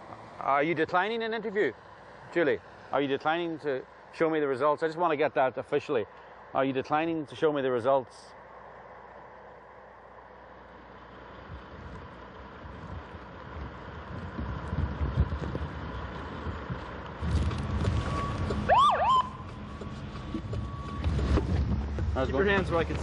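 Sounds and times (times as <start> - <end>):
car engine and tyres: 0.0 - 23.0
police siren whoop: 18.7 - 19.4.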